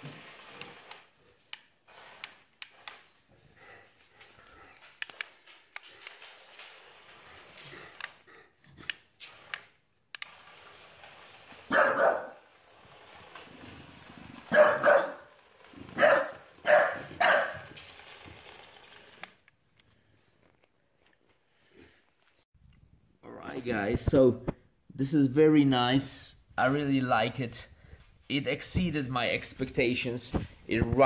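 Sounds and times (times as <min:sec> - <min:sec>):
dog barking: 0:11.7 - 0:12.4, 0:14.5 - 0:15.3, 0:16.0 - 0:17.8.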